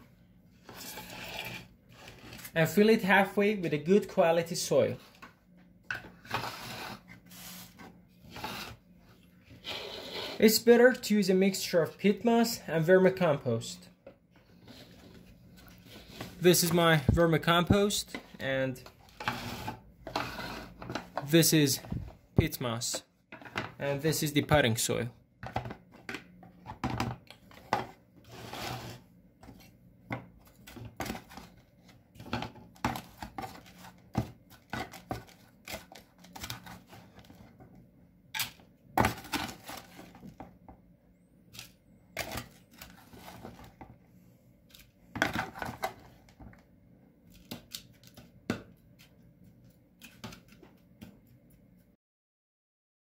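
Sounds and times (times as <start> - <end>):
plastic trowel scraping potting mix: 0.6 - 2.6, 6.2 - 8.8, 9.5 - 10.6, 19.2 - 20.8, 28.2 - 29.0.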